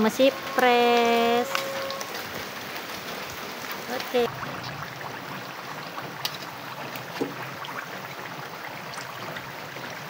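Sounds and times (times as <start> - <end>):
fritters sizzling in hot oil: 3.5 - 10.0.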